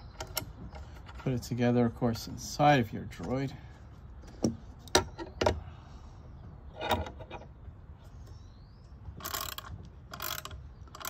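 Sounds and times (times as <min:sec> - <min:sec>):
ratchet wrench clicking: 0:09.2 - 0:11.0.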